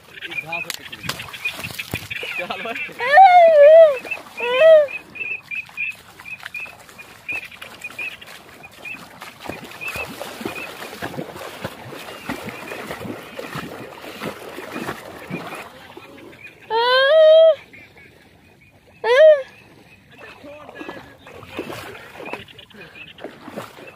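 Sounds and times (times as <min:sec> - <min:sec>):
legs wading through shallow water: 0:00.0 - 0:23.9
high chirping calls: 0:00.1 - 0:09.0.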